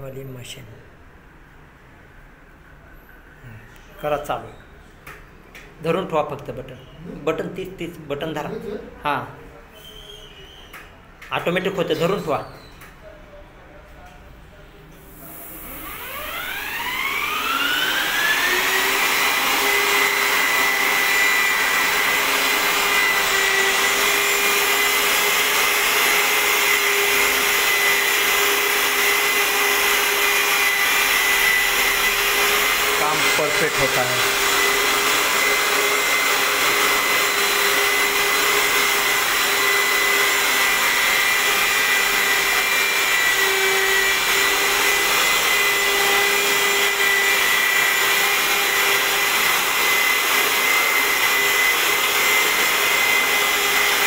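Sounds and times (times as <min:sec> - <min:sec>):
electric sander motor whining: 0:15.8 - 0:54.0.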